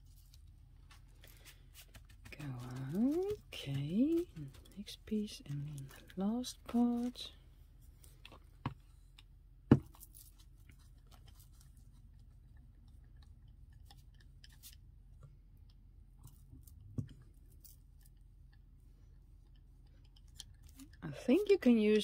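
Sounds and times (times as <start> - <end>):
paper rustling: 0.0 - 7.2.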